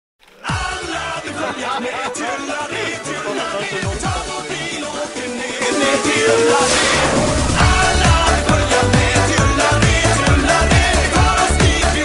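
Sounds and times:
background music with steady beat: 0.5s - 12.0s
deep falling bass hit: 6.5s - 9.5s.

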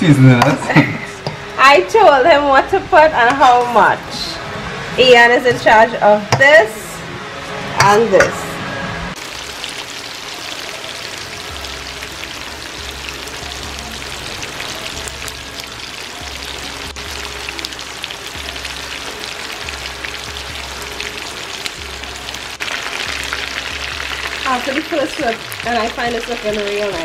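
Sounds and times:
background music: 0.0s - 27.0s
fish frying in hot oil: 9.2s - 27.0s.

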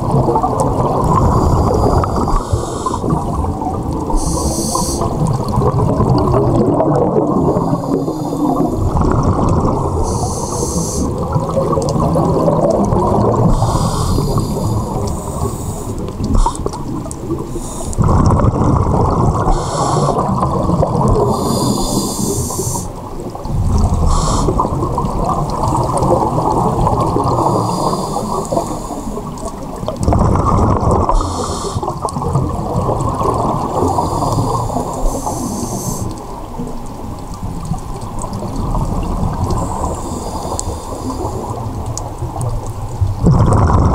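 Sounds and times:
underwater exhaled air bubbling: 0.0s - 43.9s
regulator inhalation hiss: 1.3s - 3.1s, 4.1s - 5.2s, 7.5s - 8.9s, 10.0s - 11.2s, 13.5s - 16.8s, 17.5s - 18.0s, 19.5s - 20.3s, 21.3s - 23.0s, 24.1s - 24.6s, 27.4s - 29.3s, 31.2s - 31.9s, 33.9s - 36.2s, 39.6s - 41.5s.

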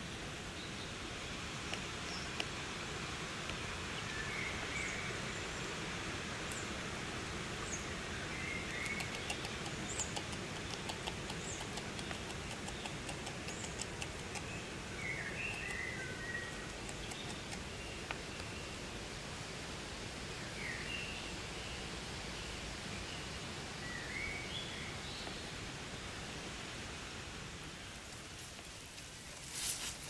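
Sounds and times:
steady outdoor hiss: 0.0s - 30.0s
birds chirping: 7.6s - 19.0s
beaver chewing a twig: 8.6s - 18.5s.

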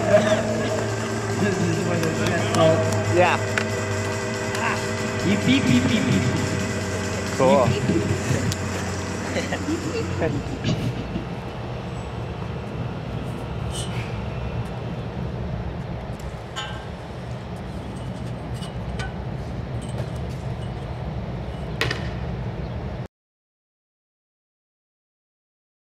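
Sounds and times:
road traffic rumble: 0.0s - 23.1s.

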